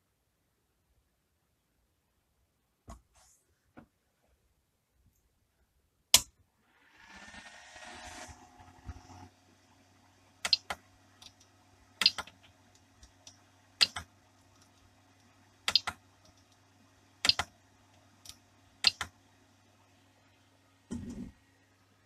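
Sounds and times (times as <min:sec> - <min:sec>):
low hum: 0:06.5 - 0:22.0.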